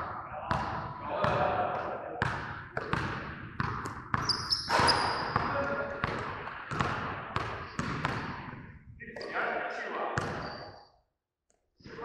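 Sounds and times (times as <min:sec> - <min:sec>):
high squeaks: 0:04.2 - 0:05.4.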